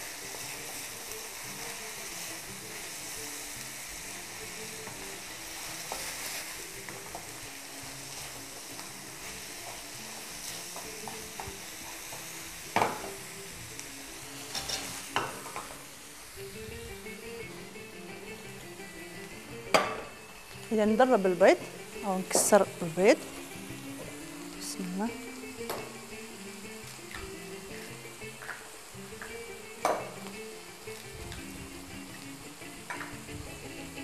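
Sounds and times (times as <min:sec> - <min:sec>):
food sizzling in frying pan: 0:00.0 - 0:34.0
utensil knocking against pan: 0:19.7 - 0:20.1.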